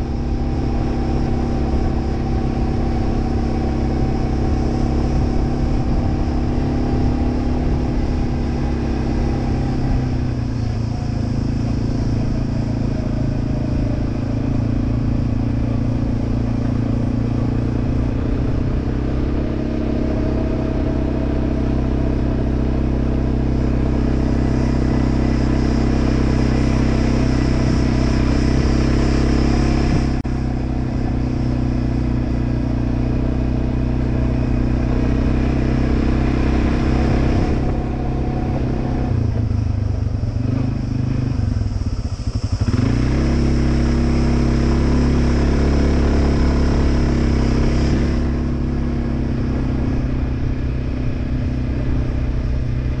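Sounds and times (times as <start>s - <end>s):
quad bike engine running: 0.0s - 53.0s.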